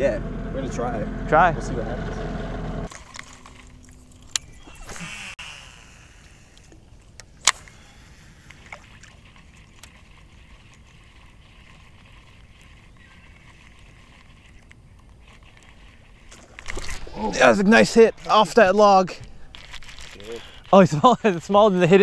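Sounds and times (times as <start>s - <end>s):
outdoor hiss on open water: 4.8s - 7.0s, 7.6s - 14.9s.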